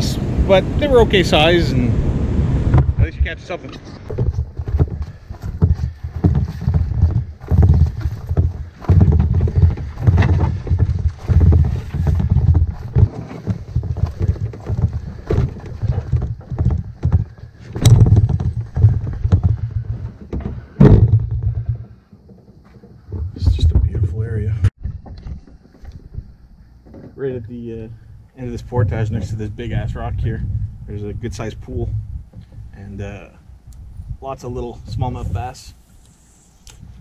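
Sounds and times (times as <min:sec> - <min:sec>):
canoe hull thudding: 0:02.5 - 0:29.8, 0:31.6 - 0:32.8
heavy thump: 0:02.7 - 0:03.4, 0:04.1 - 0:22.0.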